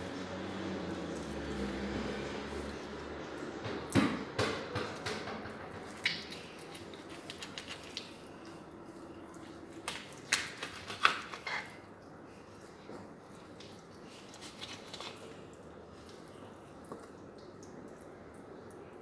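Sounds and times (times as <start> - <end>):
knife scraping fish fillet: 10.3 - 11.8.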